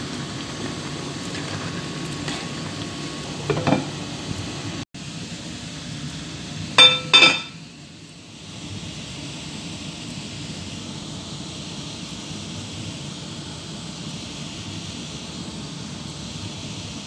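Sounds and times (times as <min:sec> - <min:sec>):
curry simmering in pan: 0:00.0 - 0:04.8.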